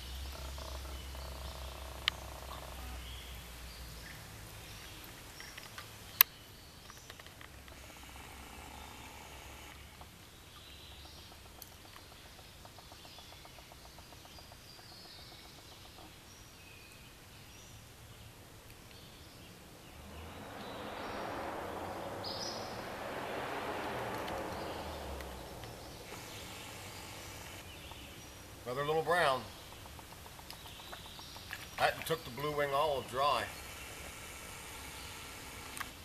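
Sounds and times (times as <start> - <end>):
birds singing: 0.0 - 7.9, 8.6 - 35.8
stream hiss: 7.6 - 10.1, 17.7 - 30.7, 31.4 - 36.0
rush of noise: 19.6 - 27.7.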